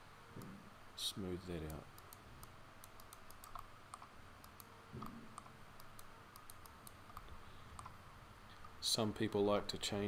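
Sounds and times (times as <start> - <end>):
low room hiss: 0.0 - 10.0
computer mouse and keyboard clicks: 1.6 - 8.0.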